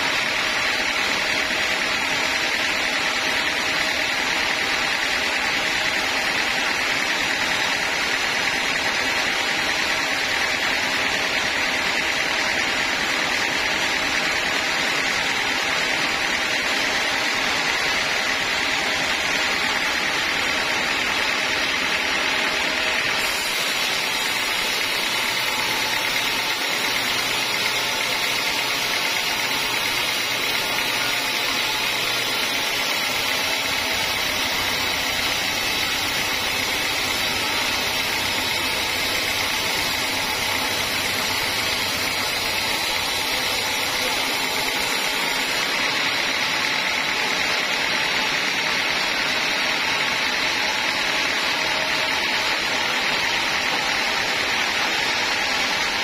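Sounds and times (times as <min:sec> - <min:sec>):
band saw blade cutting log: 0:00.0 - 0:56.0
sawmill machine drone: 0:00.0 - 0:56.0.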